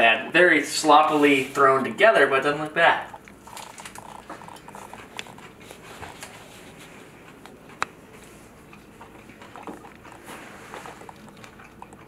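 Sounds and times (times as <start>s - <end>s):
man chewing crunchy food: 2.7s - 12.0s.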